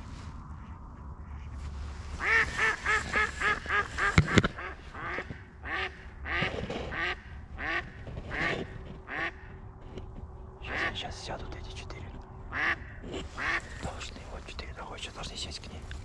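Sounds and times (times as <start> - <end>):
duck quacking: 2.2 - 9.5, 10.7 - 11.0, 12.5 - 13.8.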